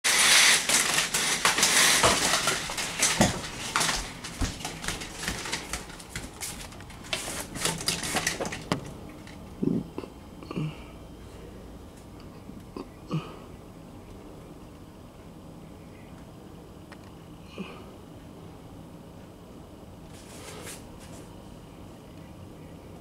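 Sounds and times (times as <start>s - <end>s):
window blind slats clattering: 0.0s - 9.4s.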